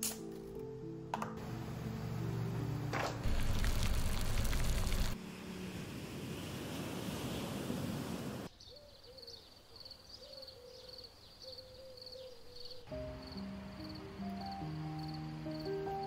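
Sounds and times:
gentle music: 0:00.0 - 0:06.6, 0:12.4 - 0:16.0
wind hiss: 0:03.2 - 0:08.5
crickets chirping: 0:08.7 - 0:16.0.

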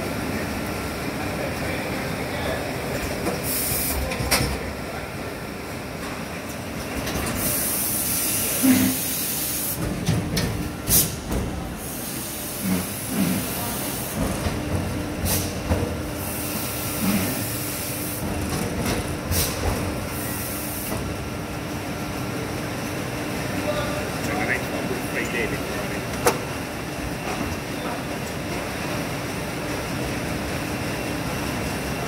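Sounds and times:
hiss: 0:11.8 - 0:14.2.

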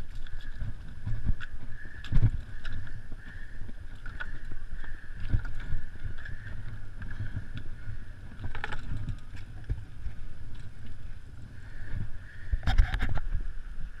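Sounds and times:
bike rumble and handling noise: 0:00.0 - 0:14.0
bike clattering on rock: 0:04.0 - 0:09.9.

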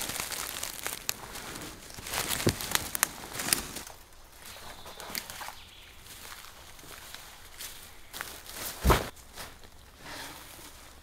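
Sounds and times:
twigs snapping: 0:00.0 - 0:05.6
footsteps crunching through leaves: 0:00.0 - 0:09.8.

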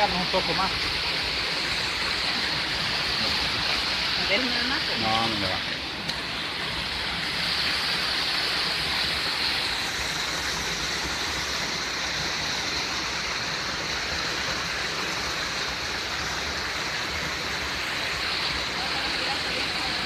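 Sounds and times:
waterfall pouring over rocks: 0:00.0 - 0:20.0.

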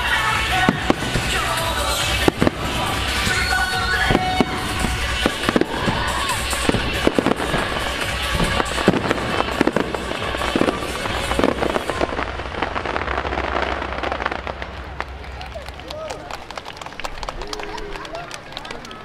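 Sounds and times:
show music: 0:00.0 - 0:13.9
firework bangs and crackle: 0:00.0 - 0:17.4.

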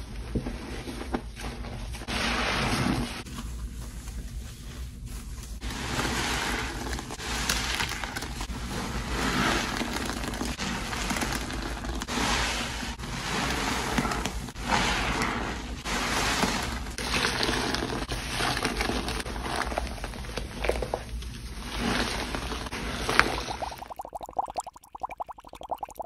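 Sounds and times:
cleaning solution swishing in water: 0:02.0 - 0:20.3, 0:21.4 - 0:26.0
foam crackling: 0:05.6 - 0:20.1, 0:21.6 - 0:26.0.

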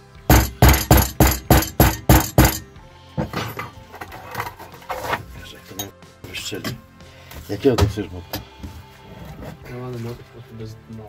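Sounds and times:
hammer blows: 0:00.3 - 0:03.5.

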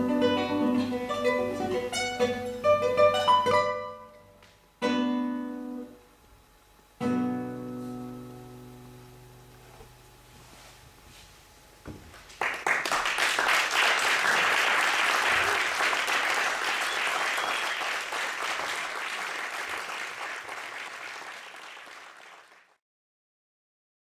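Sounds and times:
audience applauding: 0:12.2 - 0:22.8.

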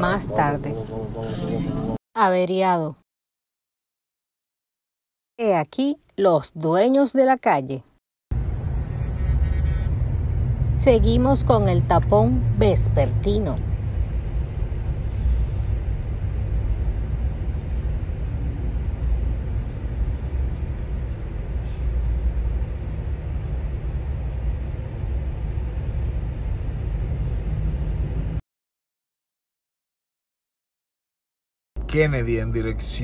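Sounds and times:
traffic jam engines rumbling: 0:00.0 - 0:02.0, 0:08.4 - 0:28.4.

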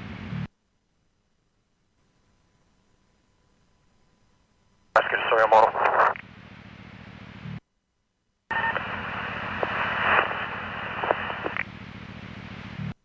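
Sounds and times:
radio hiss with whine: 0:04.9 - 0:06.3, 0:08.5 - 0:13.0
radio scanner tone: 0:05.0 - 0:06.2, 0:08.5 - 0:11.7.

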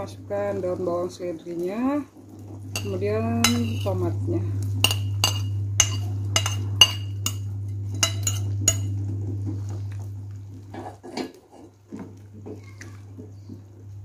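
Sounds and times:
steady low hum: 0:00.0 - 0:14.0
metal ladle clinking: 0:02.8 - 0:03.9, 0:04.8 - 0:08.9
soup stirring knocks: 0:04.8 - 0:08.9.

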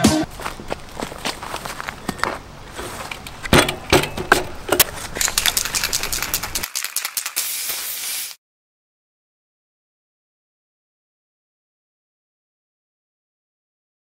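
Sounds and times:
bike knocks and rattling: 0:00.4 - 0:06.6
fast fine clicking: 0:05.2 - 0:07.8
hiss: 0:07.0 - 0:08.4.

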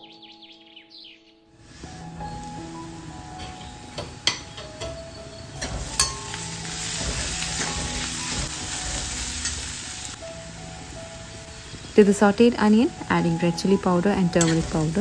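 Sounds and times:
onions sizzling in oil: 0:01.6 - 0:15.0
steel spoon clicking on pan: 0:05.6 - 0:07.7, 0:14.4 - 0:14.9.

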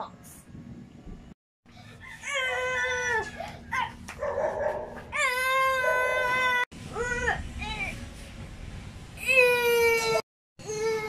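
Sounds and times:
child whining: 0:09.4 - 0:11.0.

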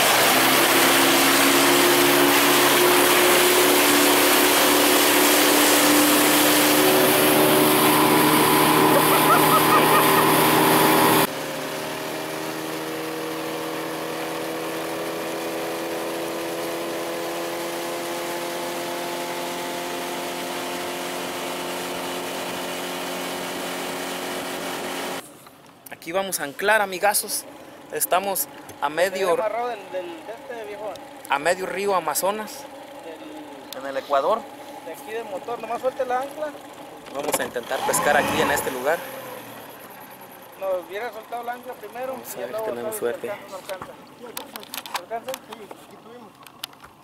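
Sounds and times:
rushing water: 0:00.0 - 0:11.3
outboard engine drone: 0:00.0 - 0:25.3, 0:27.0 - 0:47.0
wind: 0:00.0 - 0:47.0.

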